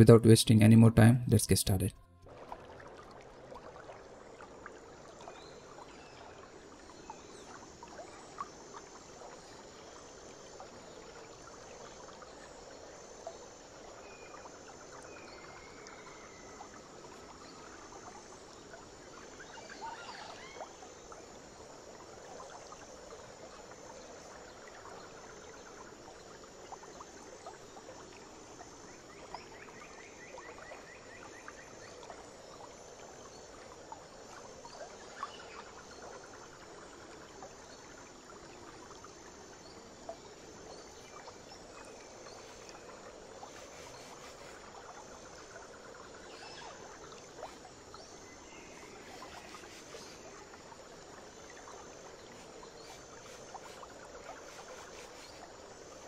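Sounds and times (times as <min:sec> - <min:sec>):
running water: 0:00.0 - 0:56.0
faint chirps: 0:39.6 - 0:56.0
high insect-like pulsing: 0:40.8 - 0:56.0.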